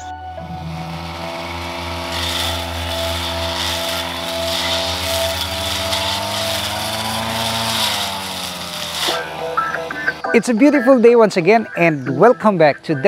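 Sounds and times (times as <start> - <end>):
small motor running: 0.4 - 9.8.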